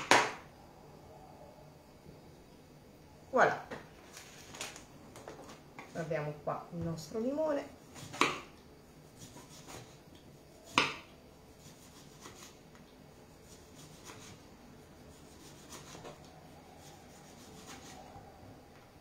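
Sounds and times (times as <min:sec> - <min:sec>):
knife slicing lemon on wood: 0:07.9 - 0:08.5, 0:09.2 - 0:10.0, 0:10.7 - 0:12.6, 0:13.4 - 0:14.4, 0:15.1 - 0:16.2, 0:16.8 - 0:18.0.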